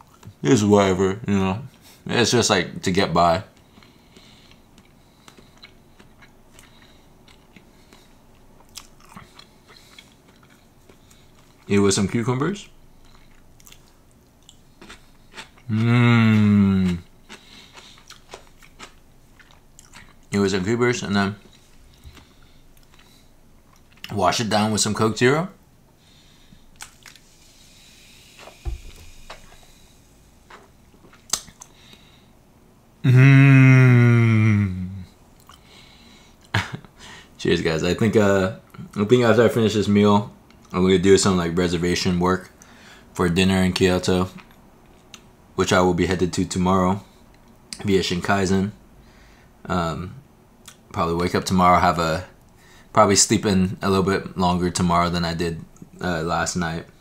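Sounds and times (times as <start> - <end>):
person chewing food: 3.5 - 11.7, 12.9 - 20.3, 21.4 - 24.1, 26.0 - 32.2, 35.3 - 36.7
soft thump: 28.6 - 29.4.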